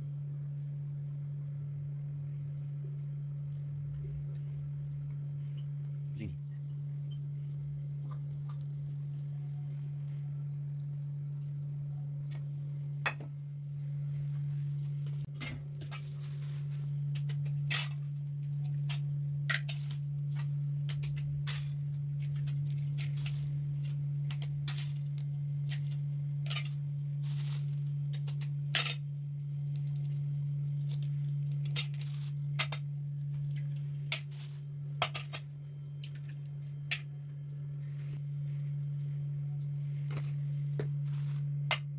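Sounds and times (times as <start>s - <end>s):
steady low hum: 0.0s - 41.9s
eggs cracking on steel bowl: 7.0s - 13.3s, 17.0s - 37.2s.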